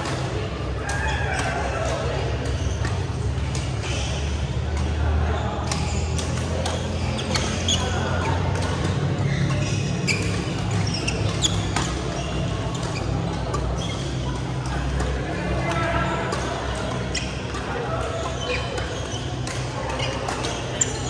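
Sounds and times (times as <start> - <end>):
shoes squeaking on court: 0.0 - 21.0
racket striking shuttlecock: 7.4 - 21.0.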